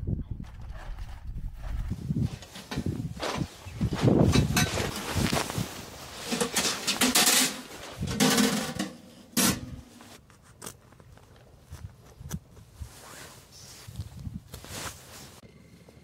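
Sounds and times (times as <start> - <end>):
footsteps on groundsheet: 0.4 - 5.8
fabric rustling: 1.7 - 8.1, 12.6 - 15.4
metal clunks: 6.3 - 9.9.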